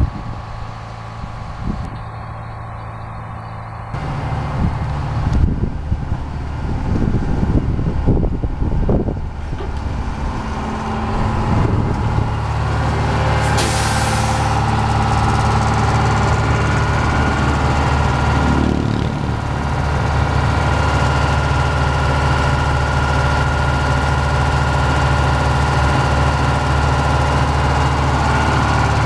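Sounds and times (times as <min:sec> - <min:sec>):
diesel engine running: 0:00.0 - 0:29.0
air release hiss: 0:13.4 - 0:14.6.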